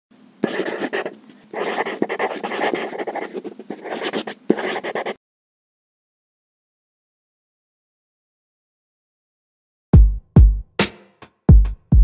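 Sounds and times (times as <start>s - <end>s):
pen scratching on paper: 0.4s - 5.2s.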